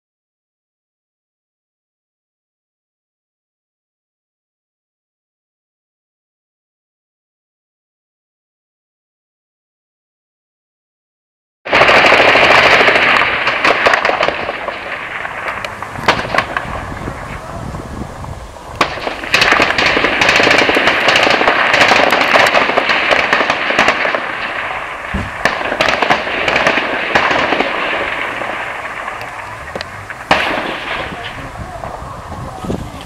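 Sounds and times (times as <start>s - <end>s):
automatic gunfire: 11.7s - 16.8s, 18.8s - 31.3s
single gunshot cracks: 11.7s - 16.8s, 18.8s - 31.4s.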